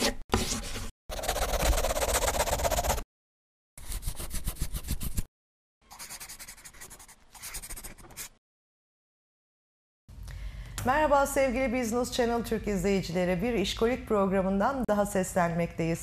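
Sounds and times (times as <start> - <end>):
pen scribbling on paper: 0.0 - 3.0, 5.9 - 8.4.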